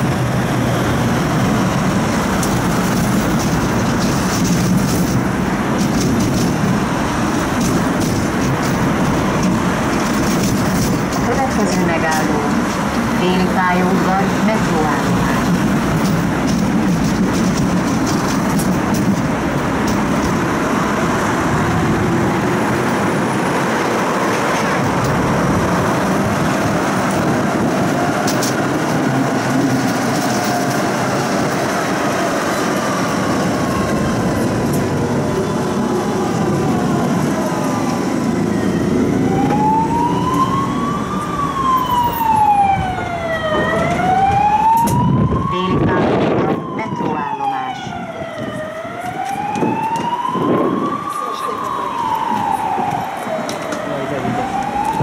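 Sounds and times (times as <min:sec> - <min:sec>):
tram rumbling on rails: 0:00.0 - 0:55.0
siren wailing: 0:11.2 - 0:16.4, 0:31.9 - 0:55.0.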